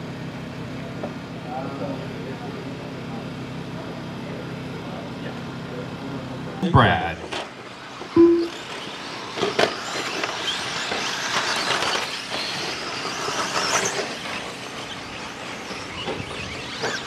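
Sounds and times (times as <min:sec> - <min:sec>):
rc car motors whining: 0:07.2 - 0:17.0.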